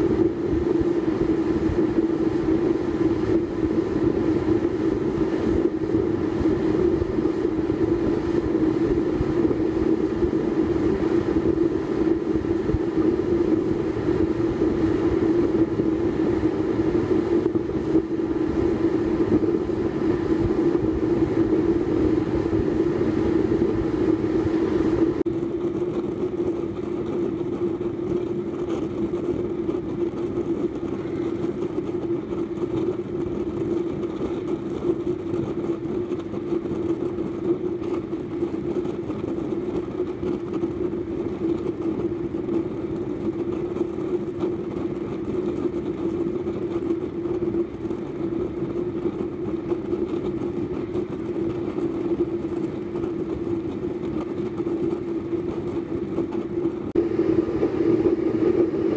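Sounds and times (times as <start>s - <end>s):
low hum: 0.0s - 25.9s, 56.7s - 58.9s
stove flame roaring: 0.0s - 58.9s.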